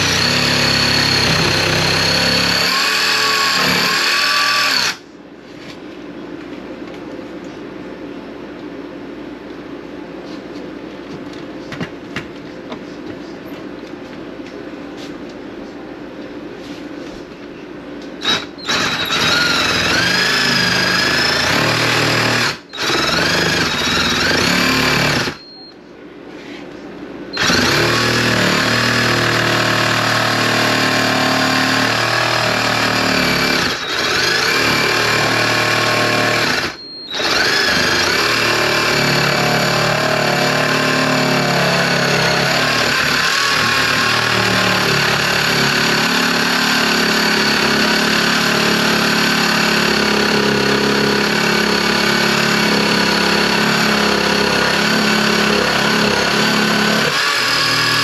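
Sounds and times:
power tool cutting into wall: 0.0 - 5.0, 18.2 - 25.4, 27.4 - 58.0.

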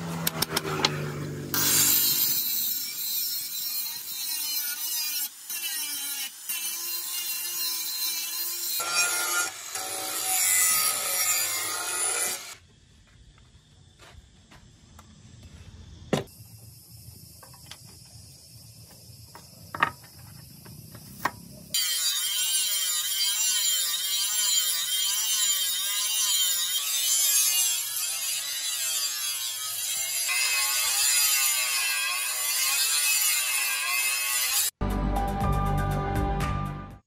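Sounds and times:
angle grinder grinding steel: 0.0 - 12.6, 21.7 - 34.8.

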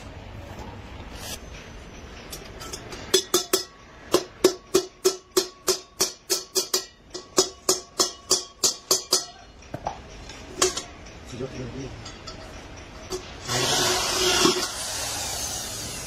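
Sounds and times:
hammer striking copper pot: 2.6 - 11.0.

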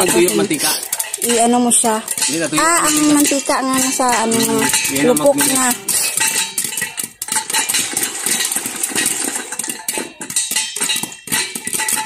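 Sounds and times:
popcorn popping in a pot: 0.0 - 12.0.

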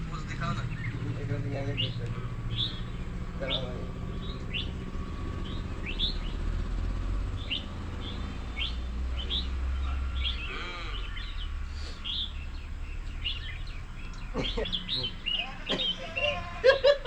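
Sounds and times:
birds chirping: 0.0 - 17.0
wavering bird call: 14.3 - 16.9.

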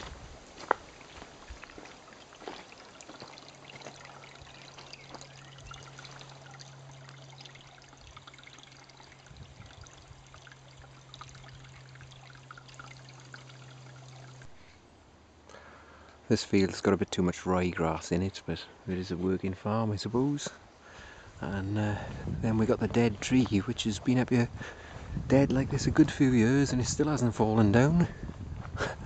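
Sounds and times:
stream trickling over stones: 0.0 - 15.0
faint low hum: 0.0 - 20.0.

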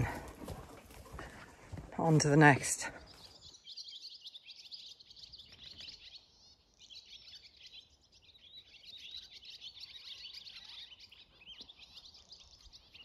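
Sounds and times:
swallows twittering: 2.8 - 13.0.

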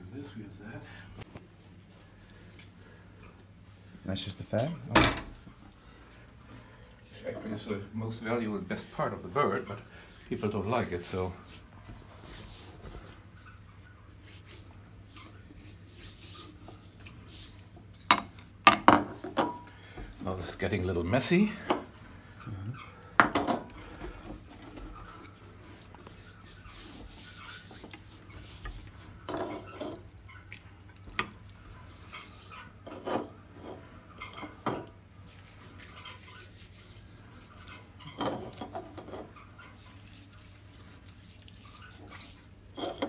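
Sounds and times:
hands rubbing oily skin: 10.1 - 18.1, 24.3 - 30.1, 31.5 - 33.4, 34.3 - 38.6, 39.3 - 42.6.

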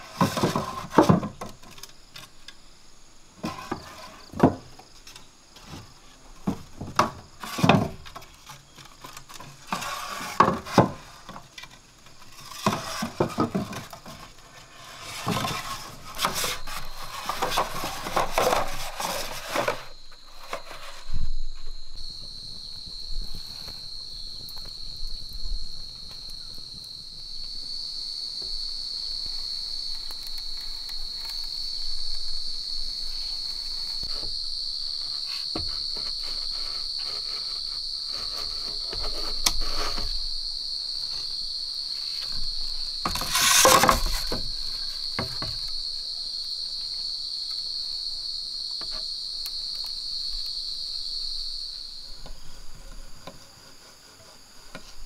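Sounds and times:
insects droning high-pitched: 0.0 - 55.0
knife scraping bamboo: 8.5 - 11.2, 14.4 - 21.1, 35.2 - 40.2, 43.0 - 44.9.

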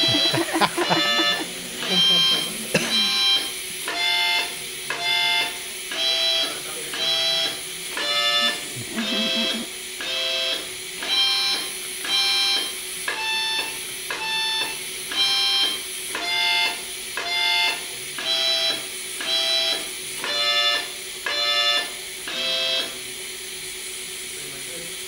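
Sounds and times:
harmonica playing held notes: 0.0 - 3.4, 6.0 - 9.7.

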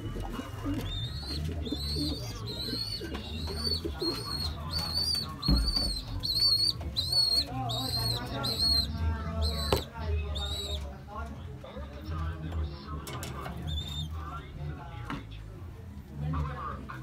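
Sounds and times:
pigeons cooing: 0.0 - 10.9, 13.0 - 14.2.

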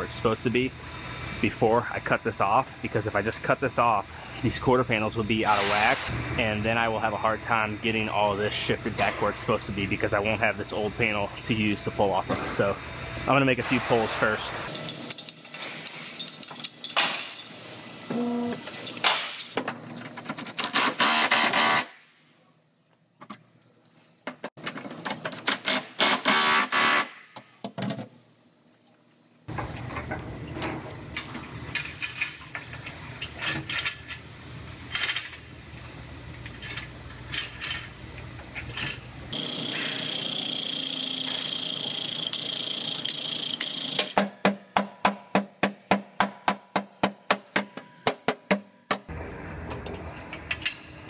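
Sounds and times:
steady low machine hum: 0.0 - 15.3
metal clanks of clamps and chain: 14.7 - 17.7, 29.5 - 32.6, 33.2 - 35.4.

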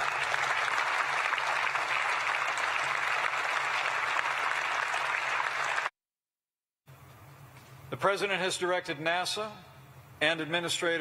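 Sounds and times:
audience applauding: 0.0 - 5.9.

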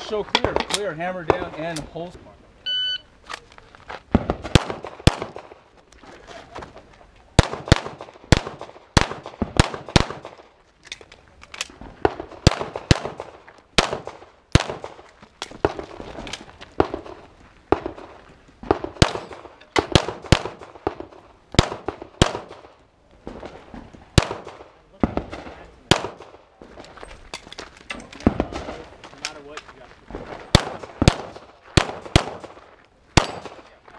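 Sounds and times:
pistol shots with echoes: 4.2 - 5.6, 7.4 - 10.5, 12.1 - 15.0, 18.7 - 22.7, 24.2 - 26.4, 30.5 - 32.6, 33.2 - 33.8.

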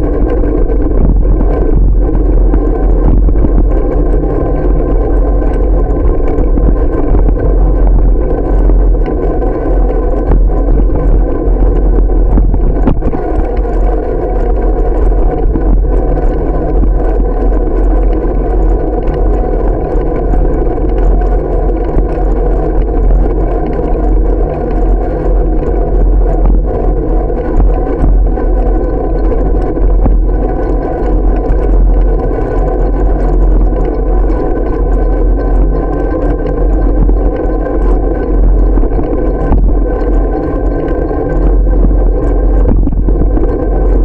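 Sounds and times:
wind rush: 0.0 - 44.0.

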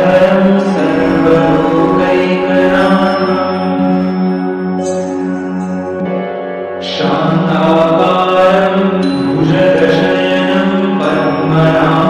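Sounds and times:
chanted mantra over held tones: 0.0 - 4.4, 6.8 - 12.0.

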